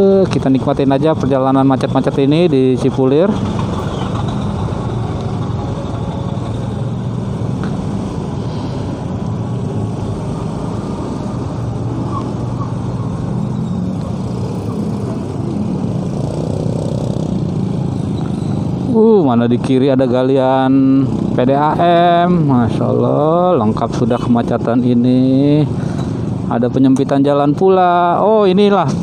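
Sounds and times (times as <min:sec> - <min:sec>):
hum of surrounding traffic: 0:00.0 - 0:29.0
motorcycle engine running: 0:09.4 - 0:19.2.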